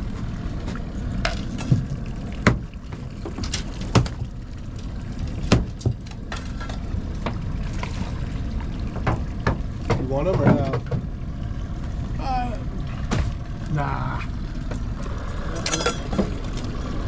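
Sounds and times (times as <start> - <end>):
wind and water rumble: 0.0 - 17.0
sharp knocks and clicks: 8.9 - 11.1.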